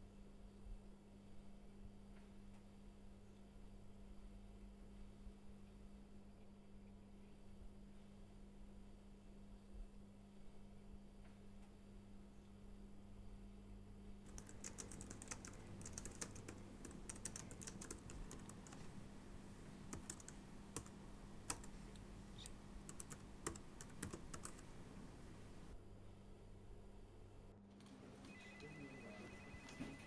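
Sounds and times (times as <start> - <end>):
faint steady hum: 0.0 - 30.0
typing on laptop keyboard: 14.3 - 18.9, 19.9 - 21.8, 22.8 - 24.8.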